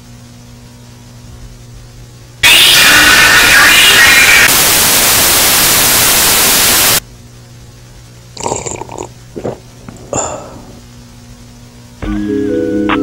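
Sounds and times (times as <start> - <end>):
tv static hiss: 2.2 - 7.1.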